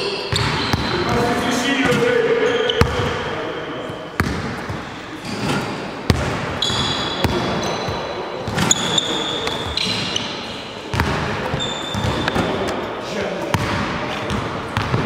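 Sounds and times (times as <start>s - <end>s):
sneakers squeaking on court: 0.0s - 12.9s
basketballs bouncing on wood floor: 0.3s - 2.1s, 2.7s - 3.2s, 4.2s - 5.4s, 6.1s - 10.2s, 10.9s - 12.6s, 13.5s - 15.0s.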